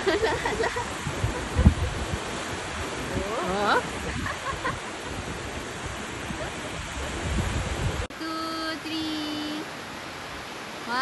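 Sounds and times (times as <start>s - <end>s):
wind buffeting microphone: 0.0s - 8.1s
waves breaking on sandy shore: 0.0s - 11.0s.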